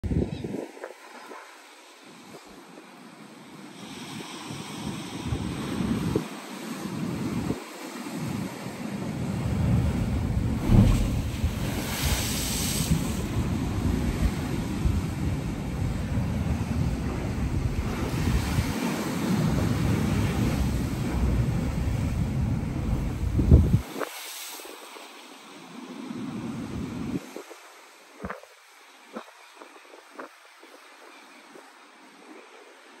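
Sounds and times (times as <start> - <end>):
sea surf on rocks: 0.5 - 31.2
wind buffeting microphone: 5.0 - 24.1
hissing surge of water: 10.4 - 13.4.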